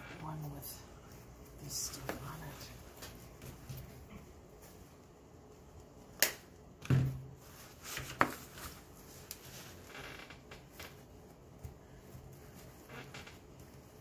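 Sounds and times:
dull thump on table: 6.8s - 7.2s
silk flowers rustling: 7.3s - 14.0s.

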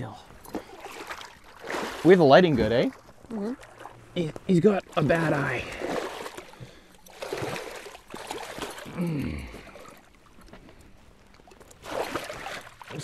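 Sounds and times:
water sloshing: 0.0s - 13.0s
fish thrashing and splashing: 0.4s - 13.0s.

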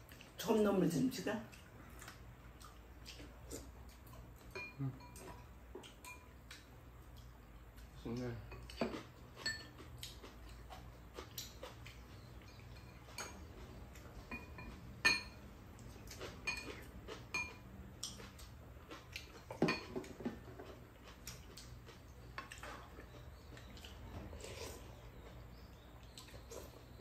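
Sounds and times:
utensils clinking against bowls: 4.4s - 6.4s, 8.4s - 9.9s, 11.5s - 15.4s, 16.1s - 18.3s, 19.4s - 21.2s.

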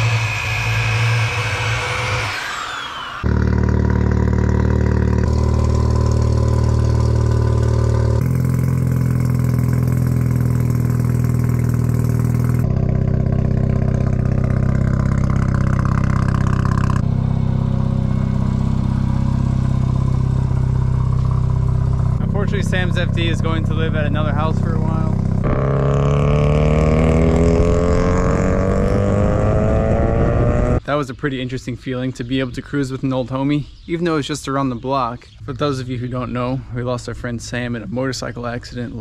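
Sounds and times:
electric drill whining: 0.0s - 4.0s
car engine idling: 0.0s - 27.4s.

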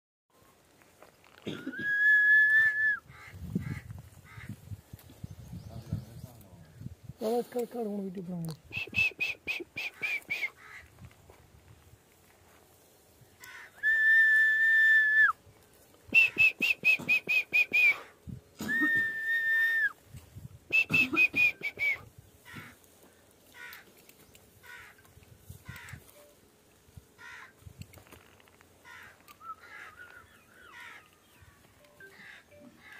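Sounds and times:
person whistling: 1.8s - 3.0s, 8.8s - 10.5s, 13.8s - 15.3s, 16.2s - 18.0s, 18.6s - 19.9s, 20.7s - 22.0s.

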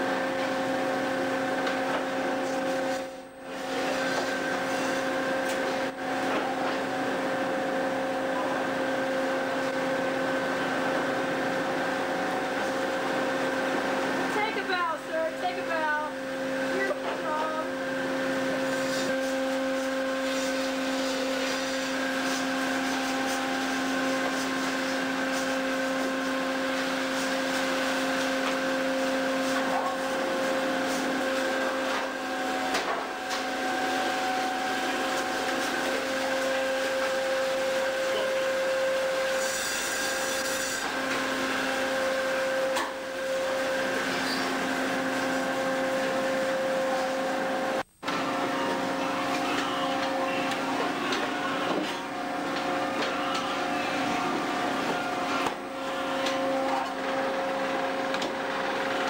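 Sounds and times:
machinery hum: 0.0s - 59.0s.

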